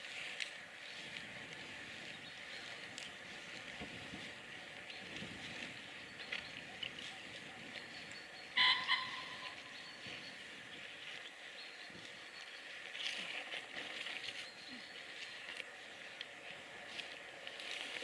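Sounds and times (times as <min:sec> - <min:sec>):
birdsong: 0:00.8 - 0:17.4
loud two-part bird call: 0:08.6 - 0:09.8.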